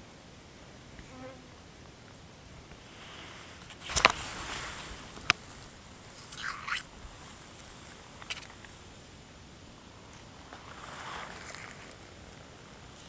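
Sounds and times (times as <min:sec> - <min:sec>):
rustling of vegetation: 0:00.0 - 0:13.0
loud crackling burst: 0:02.8 - 0:09.2
camera handling noise: 0:03.6 - 0:05.6, 0:08.2 - 0:08.7.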